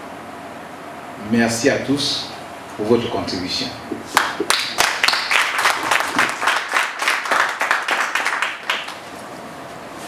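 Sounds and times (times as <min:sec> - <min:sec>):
audience applauding: 0:04.2 - 0:09.1.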